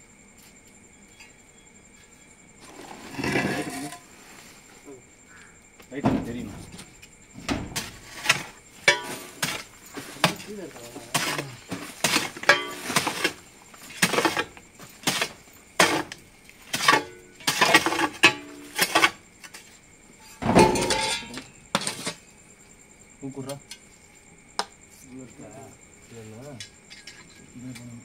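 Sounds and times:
scraping crunch of rubble: 7.7 - 19.7.

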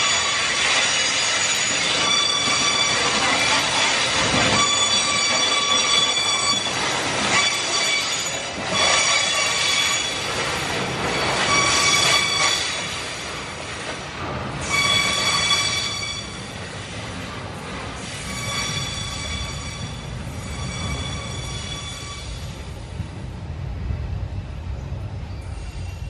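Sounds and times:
steel wheels squealing: 0.0 - 13.8, 14.5 - 16.8, 17.9 - 22.8, 25.3 - 26.0.

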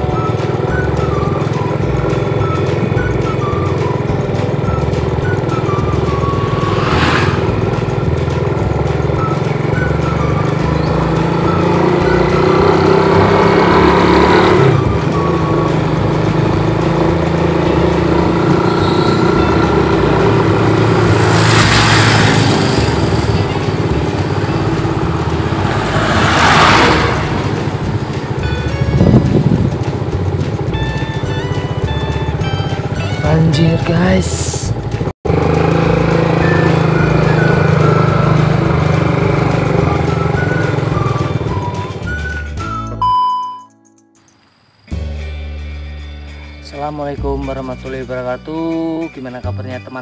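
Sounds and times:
motorcycle engine running: 0.0 - 42.2
brief rushes of noise: 6.0 - 8.2, 24.2 - 28.4.

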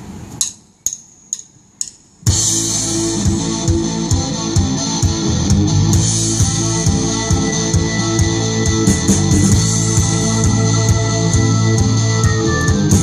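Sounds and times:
count-in clicks: 0.4 - 2.2
drum kit beat: 0.4 - 13.0
bass guitar: 2.3 - 13.0
electric guitar: 2.3 - 13.0.

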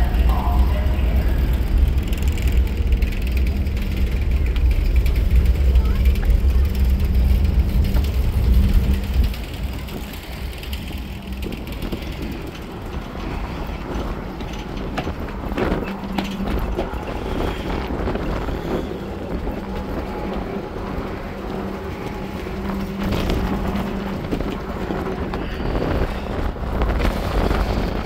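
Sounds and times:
ferry engine rumble and hum: 0.0 - 28.0
wind noise: 0.0 - 28.0.

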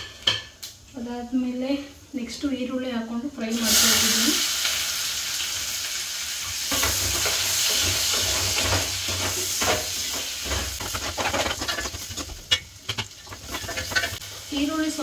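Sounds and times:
onions sizzling in a pan: 3.4 - 15.0
spoon scraping and clinking on pan: 6.7 - 14.2.

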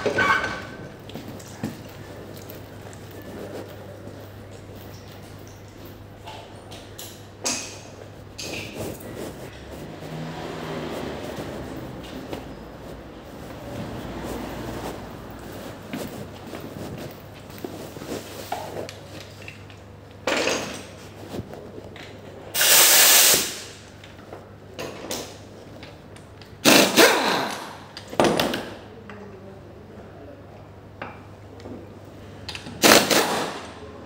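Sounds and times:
air hiss: 22.6 - 23.8
power tool bursts: 26.6 - 27.6, 32.8 - 33.7.

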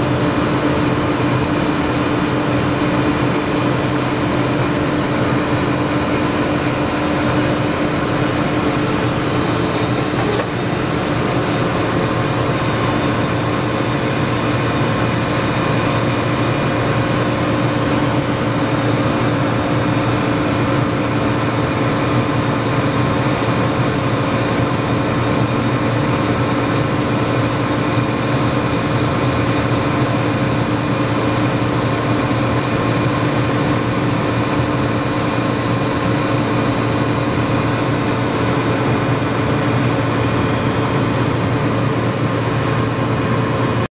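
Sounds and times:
milling machine humming: 0.0 - 43.9
machine whining tones: 1.9 - 22.5.

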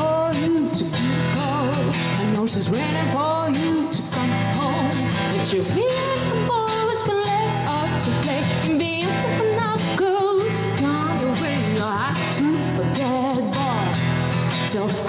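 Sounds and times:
acoustic guitar: 0.0 - 15.0
woman singing: 0.0 - 15.0.

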